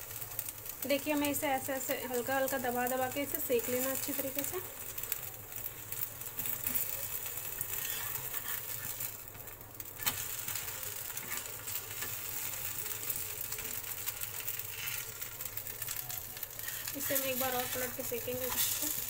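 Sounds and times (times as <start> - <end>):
batter sizzling in oil: 0.0 - 19.0
metal spatula scraping pan: 7.6 - 9.0, 14.6 - 15.2, 16.6 - 19.0.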